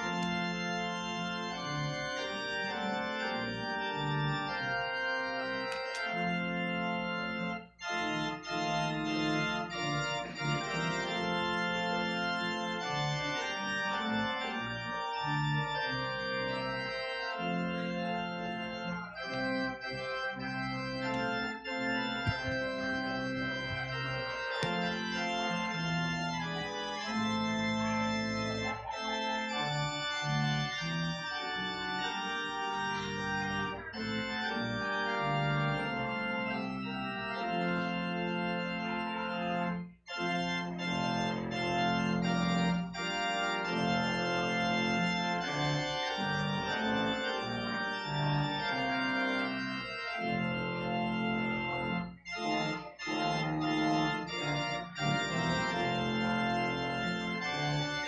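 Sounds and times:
organ playing chords: 0.0s - 58.0s.

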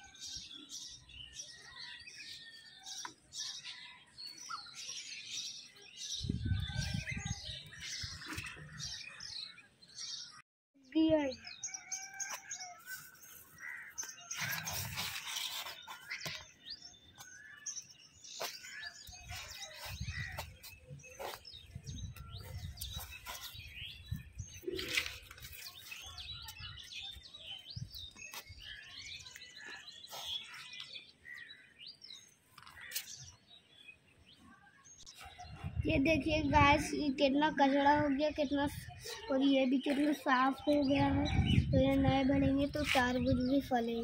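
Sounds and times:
small birds chirping: 0.0s - 44.0s
rustling of weeds being pulled: 12.4s - 16.4s.

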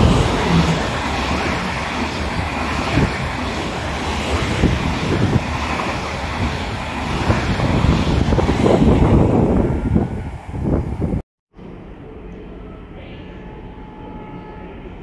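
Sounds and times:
wind buffeting microphone: 0.0s - 11.2s
train running past: 0.0s - 15.0s.

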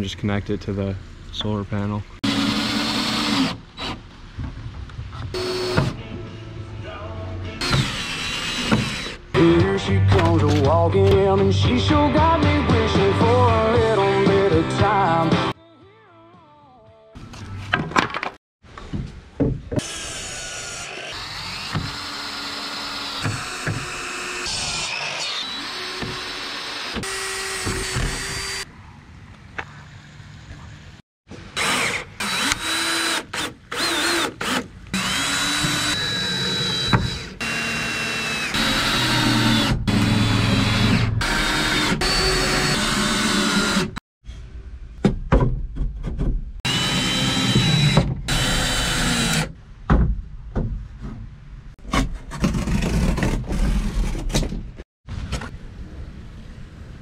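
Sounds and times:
cordless drill driving screws into wood: 31.6s - 43.9s, 46.7s - 49.5s.

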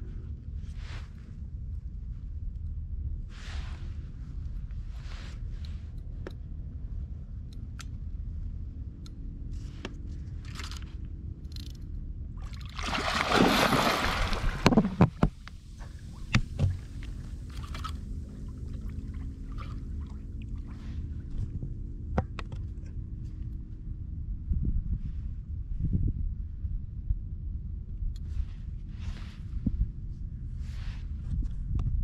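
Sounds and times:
low rumble and motor hum: 0.0s - 32.0s
water sloshing: 12.4s - 20.8s
loud rushing splash: 12.8s - 15.0s.

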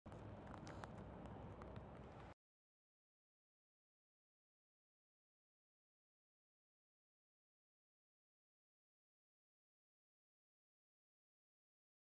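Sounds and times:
low street rumble: 0.0s - 2.4s.

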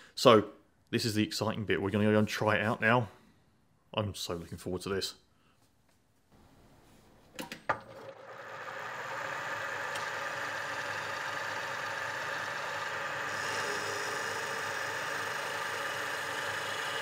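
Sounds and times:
motor whirring: 7.9s - 17.0s.

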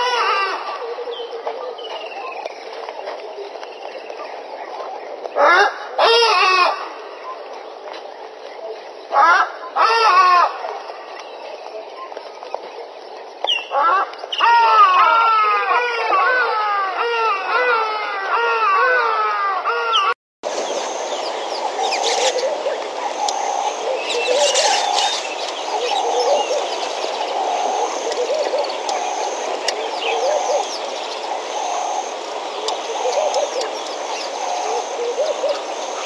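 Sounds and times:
frogs calling: 19.9s - 36.0s.

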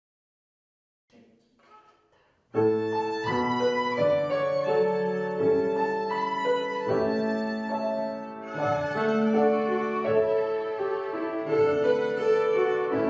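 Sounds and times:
piano accompaniment: 2.6s - 13.0s
violins playing a melody: 2.6s - 13.0s.

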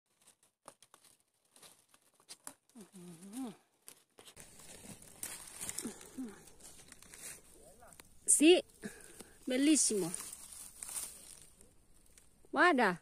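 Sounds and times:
dry leaves rustling and crackling: 0.1s - 12.3s
person humming: 2.8s - 3.7s, 5.8s - 6.6s.

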